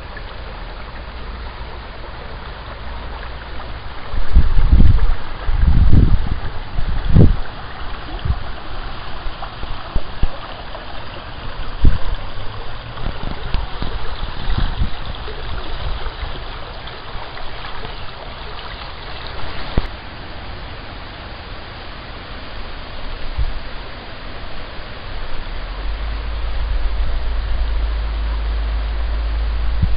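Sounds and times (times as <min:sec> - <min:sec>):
brook water over stones: 0:00.0 - 0:29.9.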